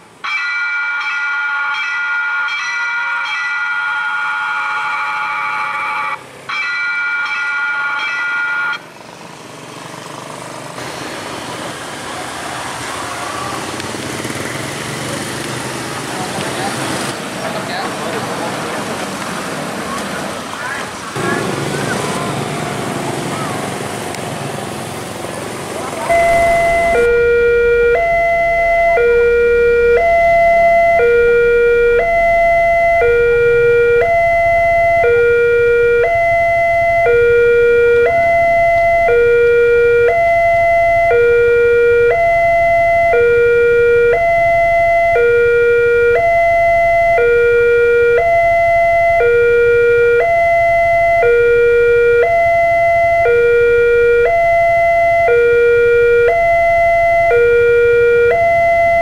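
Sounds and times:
level crossing two-tone alarm: 0.2 - 8.8, 26.1 - 59.0.

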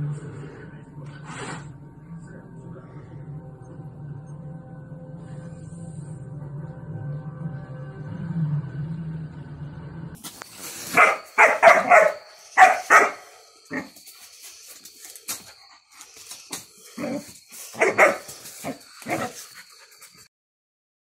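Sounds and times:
dog barking: 10.9 - 14.0, 17.0 - 19.5.

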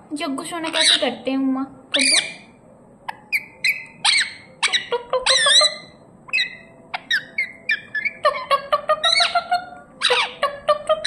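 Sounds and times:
parakeet chirping: 0.5 - 1.3, 1.9 - 11.0.

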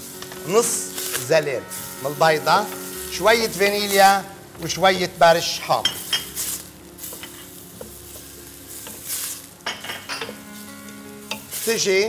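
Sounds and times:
onions sizzling in a pan: 0.0 - 12.0
spoon scraping a pan: 5.8 - 10.6.

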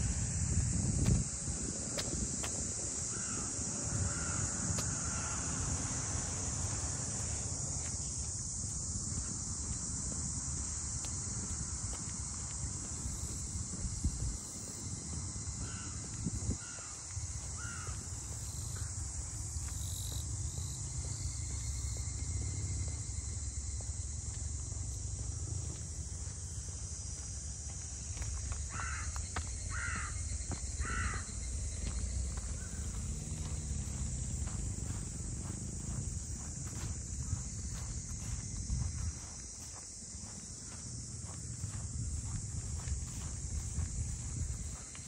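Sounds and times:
cicadas shrilling: 0.0 - 45.0
crow cawing: 3.1 - 5.6, 16.6 - 17.0, 17.6 - 18.0, 28.7 - 30.2, 30.8 - 31.3.

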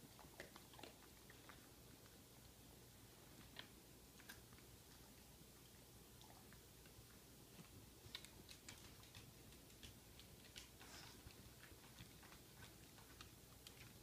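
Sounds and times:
dog claws clicking on wood floor: 8.1 - 14.0.

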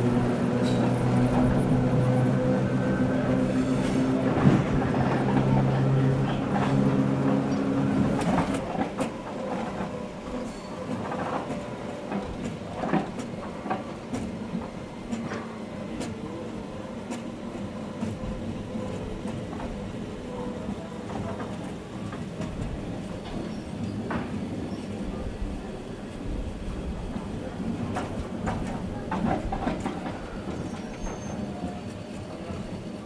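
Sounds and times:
train motor hum: 0.0 - 23.4
wheels clicking over rail joints: 26.9 - 32.9.

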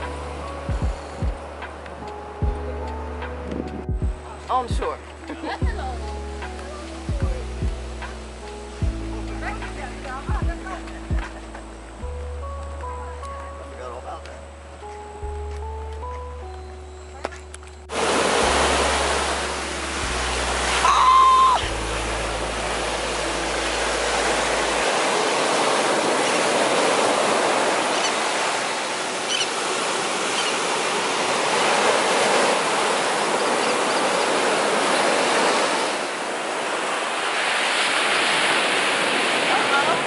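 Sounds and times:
ocean surf breaking on sand: 17.9 - 40.0.

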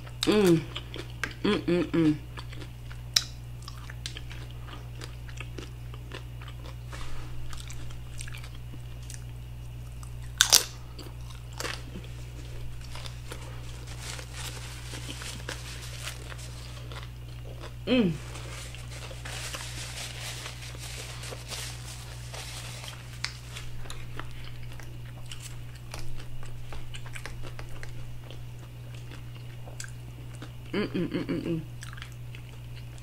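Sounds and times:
person humming mm: 0.2 - 0.8, 1.4 - 2.2, 17.8 - 18.5, 30.7 - 31.7
taco shell crunching: 2.4 - 30.5
paper napkin rustling: 12.1 - 16.9, 18.2 - 24.1.

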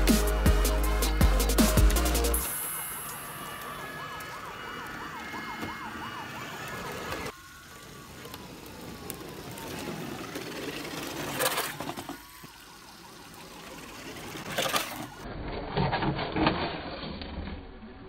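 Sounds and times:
electronic siren: 2.4 - 9.1
toy electric motor whirring: 5.1 - 15.3.

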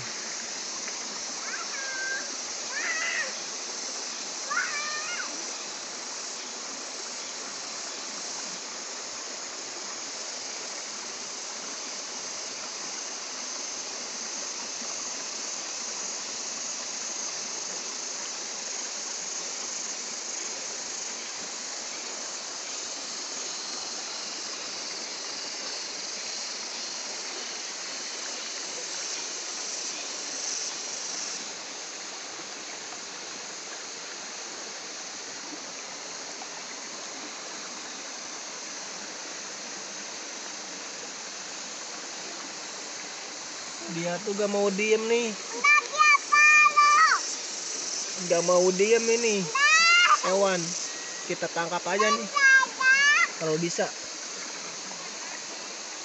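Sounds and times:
stream flowing over rocks: 0.0 - 56.0.

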